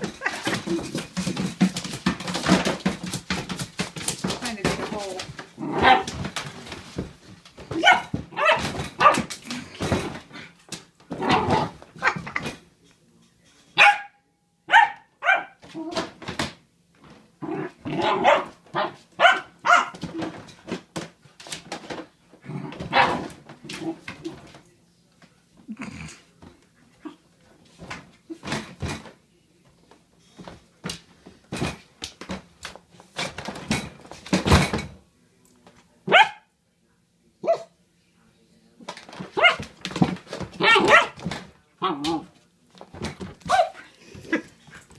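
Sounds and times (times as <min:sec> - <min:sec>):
puppy scuffling in plastic crate: 0:00.0 - 0:10.5, 0:38.8 - 0:44.9
puppy barking: 0:07.8 - 0:09.3, 0:13.8 - 0:15.6, 0:18.0 - 0:20.0, 0:36.1 - 0:36.5, 0:37.4 - 0:37.7, 0:39.4 - 0:39.6, 0:40.6 - 0:41.2, 0:43.5 - 0:43.9.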